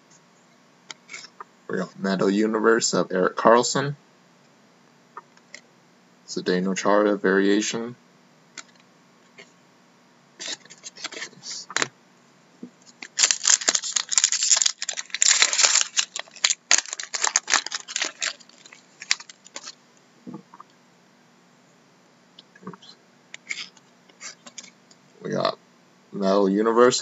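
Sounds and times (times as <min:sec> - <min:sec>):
foil card pack crinkling: 0:12.9 - 0:19.8.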